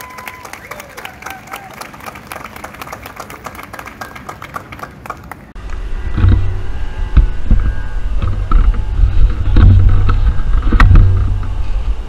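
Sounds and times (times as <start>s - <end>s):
crowd applauding: 0.0s - 5.6s
loud low rumble: 5.5s - 12.0s.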